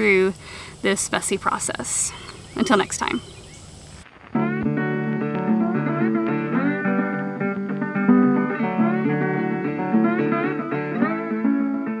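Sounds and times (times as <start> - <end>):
plucked guitar piece: 4.3 - 12.0.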